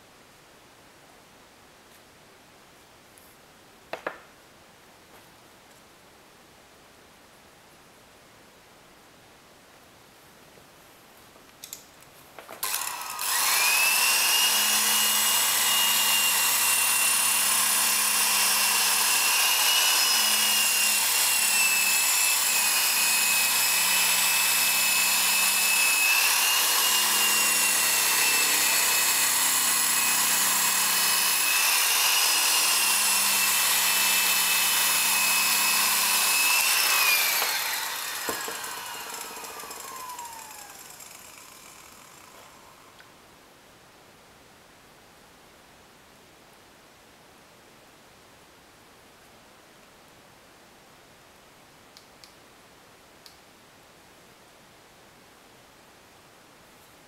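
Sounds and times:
rotary polisher whining: 0:12.6 - 0:42.8.

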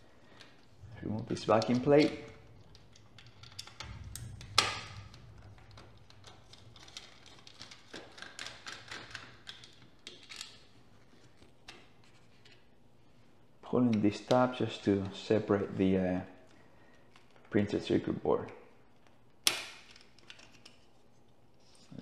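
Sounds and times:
metal plate being handled: 0:00.8 - 0:09.3.

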